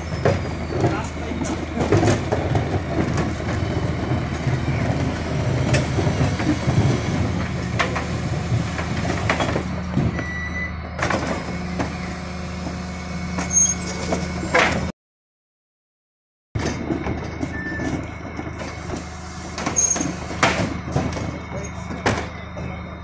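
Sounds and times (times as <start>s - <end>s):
truck diesel engine running: 0.0s - 14.9s, 16.6s - 23.0s
plastic bin clanking and banging: 0.1s - 5.1s, 16.6s - 22.7s
hydraulic bin lifter: 16.6s - 23.0s.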